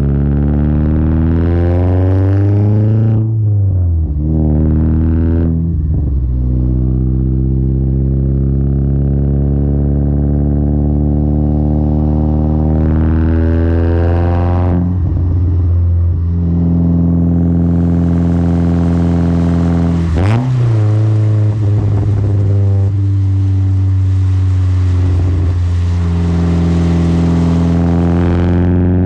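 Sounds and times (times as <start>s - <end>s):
loud car engine exhaust: 0.0s - 29.0s
exhaust pop: 17.4s - 28.8s.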